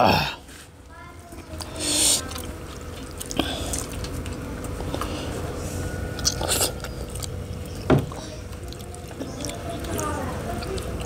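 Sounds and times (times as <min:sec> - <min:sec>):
chewing and biting food: 0:01.5 - 0:11.0.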